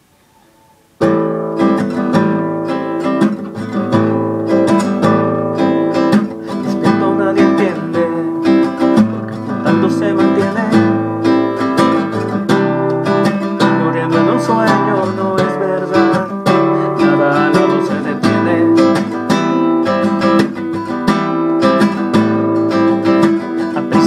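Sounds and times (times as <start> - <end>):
classical acoustic guitar: 0.3 - 24.0.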